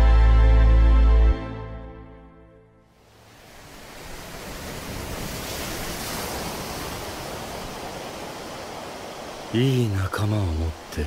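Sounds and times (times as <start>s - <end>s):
steady rushing ambient noise: 3.0s - 11.0s.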